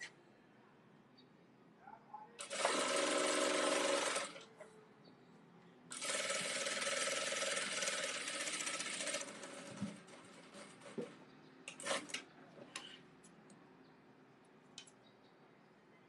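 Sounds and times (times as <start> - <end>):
sewing machine running: 2.4 - 4.4, 5.9 - 10.6.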